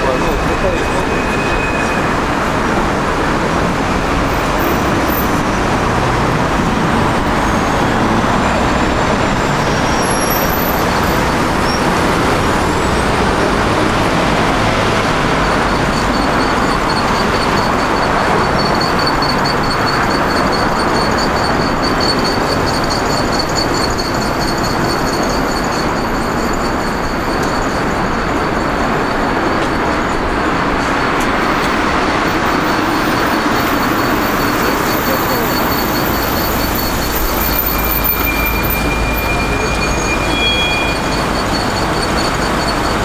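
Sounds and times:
traffic road noise: 0.0s - 43.0s.

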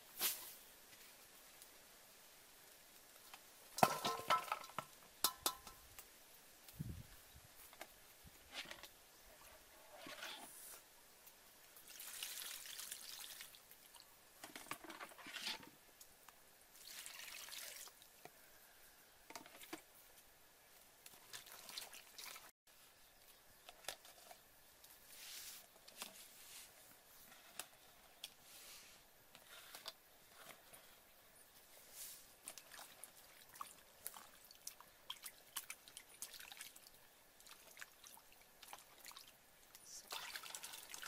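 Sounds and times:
water splashing in a metal bowl: 11.8s - 14.0s, 16.8s - 18.1s, 21.1s - 22.5s, 32.4s - 39.4s, 40.0s - 41.0s.

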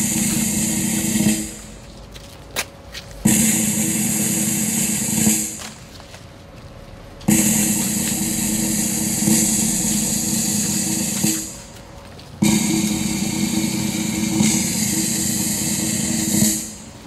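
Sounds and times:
snare drum rolls: 0.0s - 1.9s, 3.3s - 5.9s, 7.3s - 11.8s, 12.4s - 17.0s.

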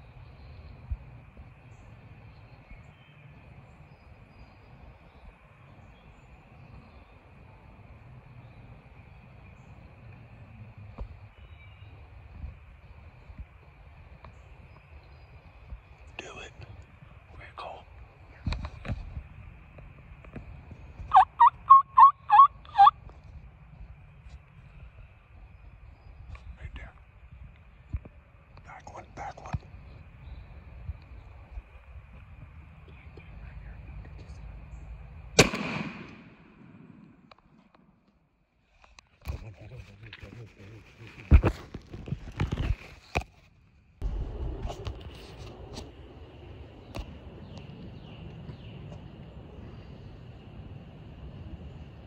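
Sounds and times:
insect-like drone: 0.0s - 21.1s, 22.9s - 35.4s, 43.8s - 52.0s
bird chirps: 21.1s - 22.9s
wild turkey yelping: 21.1s - 23.0s
low rumble: 44.0s - 52.0s.

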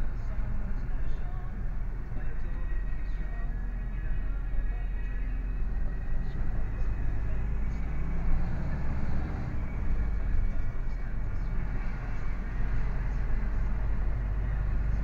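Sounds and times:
lorry engine running: 0.0s - 15.0s
tyre and road noise: 4.6s - 15.0s.

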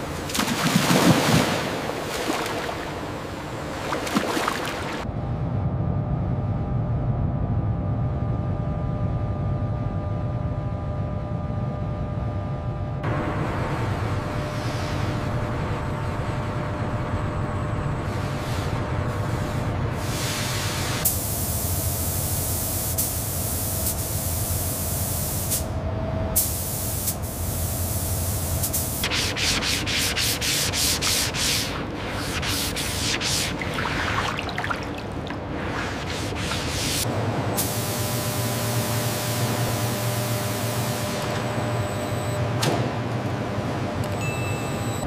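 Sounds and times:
low hum: 0.0s - 18.2s
wet sandpaper rubbing: 29.0s - 34.1s, 35.6s - 37.0s.

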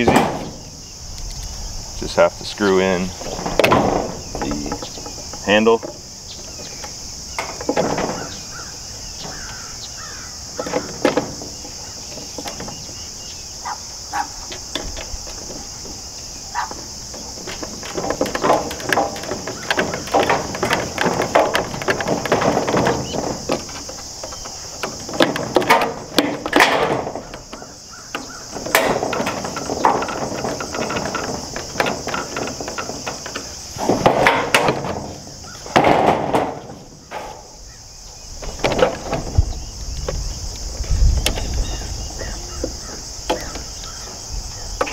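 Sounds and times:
high insect drone: 0.0s - 44.9s
plastic parts clattering: 17.1s - 37.3s.

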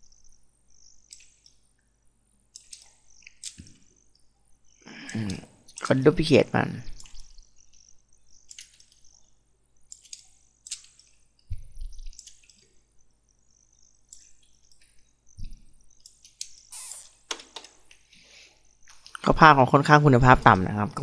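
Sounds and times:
mouse and keyboard clicks: 1.0s - 1.6s, 2.5s - 3.8s, 7.0s - 9.2s, 9.9s - 12.7s, 14.1s - 16.7s
low thumps: 11.5s - 12.1s.

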